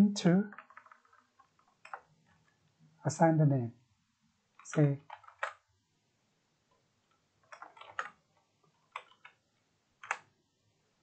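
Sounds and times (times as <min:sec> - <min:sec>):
typing on computer keyboard: 0:00.5 - 0:02.6, 0:04.6 - 0:05.7, 0:07.1 - 0:09.4, 0:10.0 - 0:10.3.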